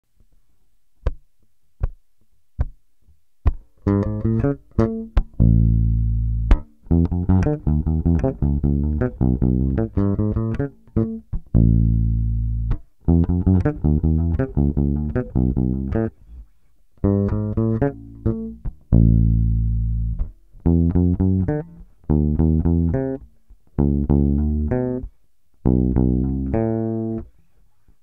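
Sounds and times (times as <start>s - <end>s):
electric bass playing disco line: 3.9s - 16.2s, 17.0s - 23.2s, 23.8s - 27.2s.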